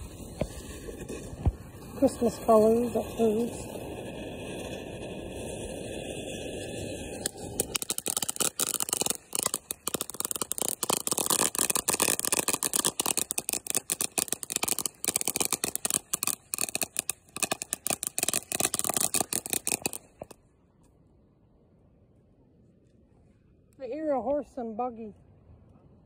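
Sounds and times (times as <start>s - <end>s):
firework fountain crackling: 0.0s - 20.4s.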